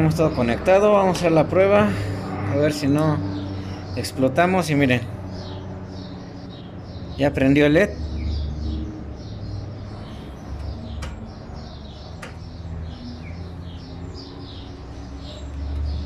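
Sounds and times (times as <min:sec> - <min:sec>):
small birds chirping: 0:00.0 - 0:16.0
sharp clicks: 0:10.6 - 0:11.3.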